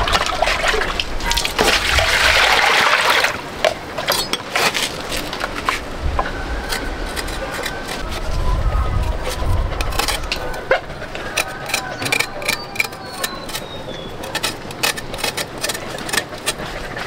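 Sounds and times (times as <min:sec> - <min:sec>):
water gushing: 0:00.0 - 0:06.0.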